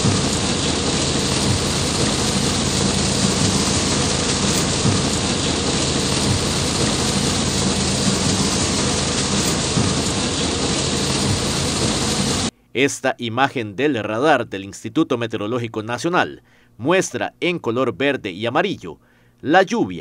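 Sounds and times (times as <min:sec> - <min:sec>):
heavy rain on pavement: 0:00.0 - 0:12.5.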